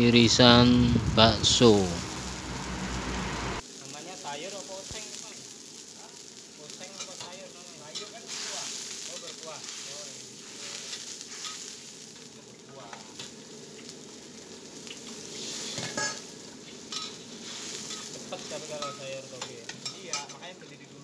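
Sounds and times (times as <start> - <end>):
meatballs sizzling: 0.0 - 21.0
metal spatula scraping wok: 7.9 - 11.9, 15.4 - 16.2, 16.9 - 20.4.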